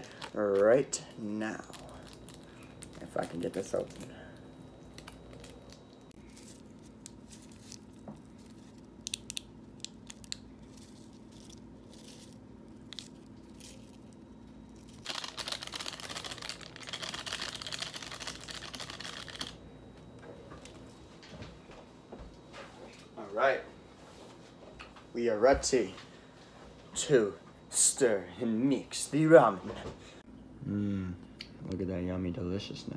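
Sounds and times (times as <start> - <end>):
foil packet crinkling: 0.0 - 4.1, 4.8 - 19.6.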